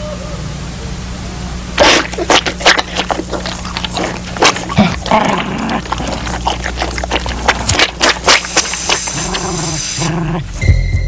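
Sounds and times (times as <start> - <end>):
steady low hum: 0.0 - 11.0
dog snarling and growling: 1.8 - 10.6.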